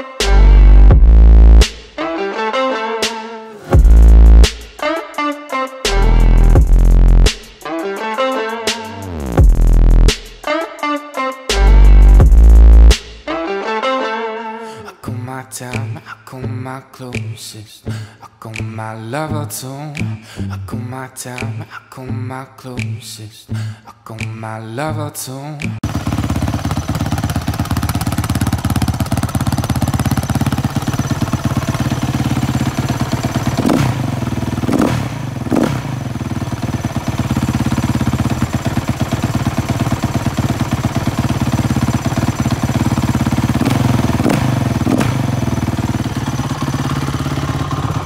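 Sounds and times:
motorcycle engine idling: 25.8 - 48.0
motorcycle throttle blips: 25.8 - 48.0.

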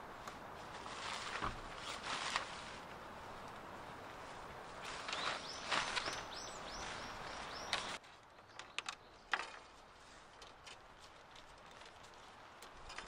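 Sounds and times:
tent fabric rustling: 0.0 - 8.3
bird calling: 5.0 - 9.4.

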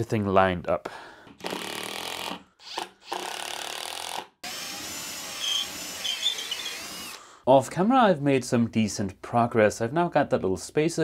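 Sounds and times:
cordless drill boring plywood: 1.4 - 7.2.

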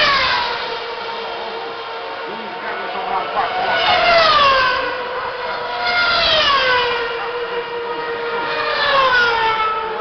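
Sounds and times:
racing car engines passing by: 0.0 - 10.0.

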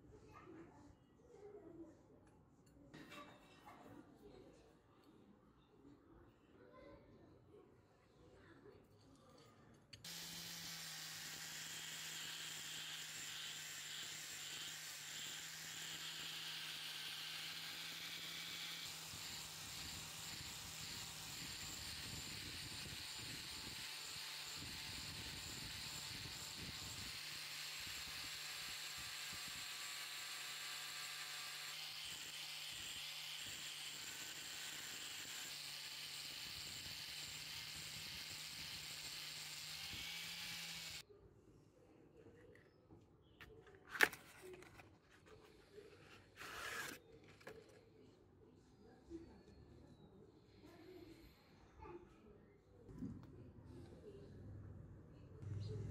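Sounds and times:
angle grinder polishing metal: 10.0 - 41.0, 46.4 - 47.0.

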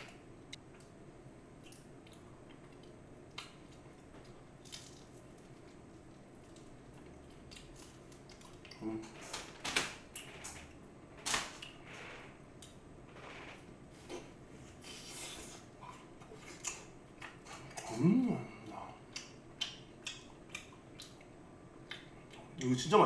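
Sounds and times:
chewing fried chicken: 1.6 - 9.0, 14.8 - 22.7.

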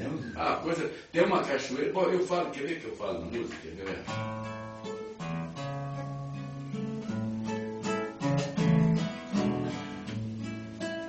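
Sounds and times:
acoustic guitar strumming: 3.4 - 11.0.

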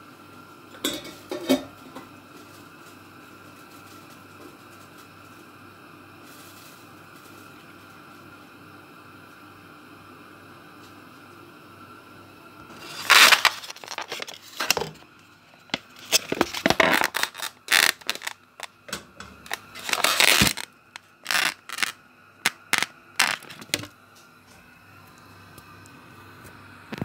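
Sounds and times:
clicks and knocks of objects: 12.8 - 21.9.

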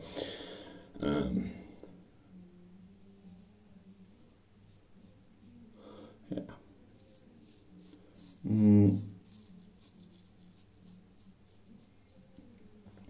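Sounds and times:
razor scraping stubble: 7.0 - 12.4
person humming: 8.3 - 9.5.

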